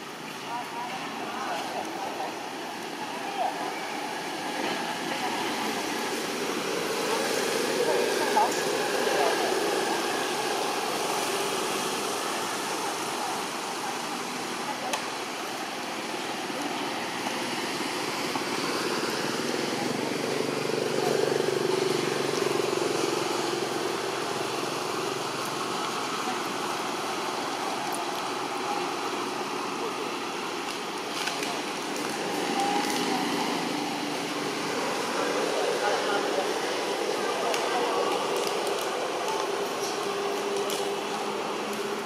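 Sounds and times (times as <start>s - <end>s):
faint indistinct voices: 0.0s - 42.0s.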